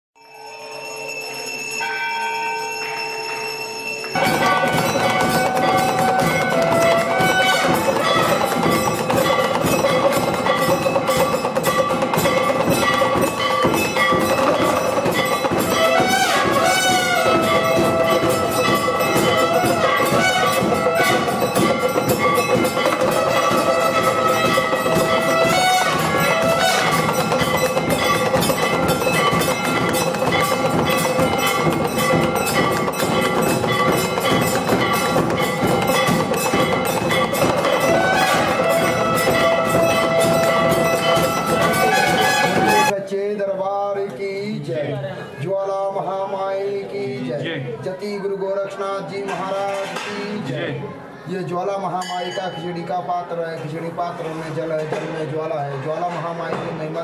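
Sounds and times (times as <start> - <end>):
bell-like chime: 0.2 - 42.9, 52.0 - 53.0
bells ringing: 0.2 - 43.0, 51.9 - 53.6
hand drum beating: 4.2 - 42.9.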